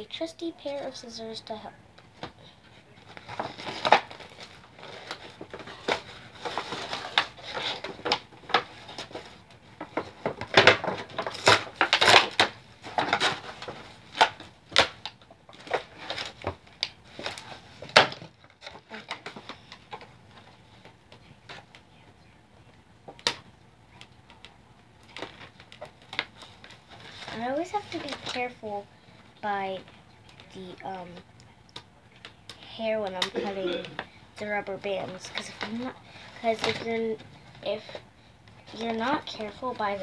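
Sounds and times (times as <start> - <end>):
plastic packaging crinkling: 3.0 - 20.9, 25.0 - 31.2, 32.1 - 40.0.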